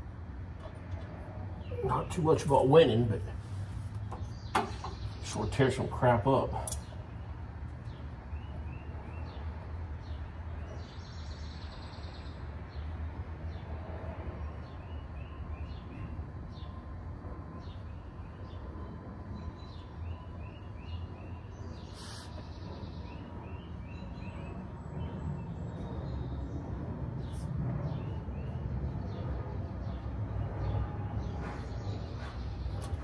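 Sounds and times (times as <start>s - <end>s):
bird chirping: 19.3s - 33.0s.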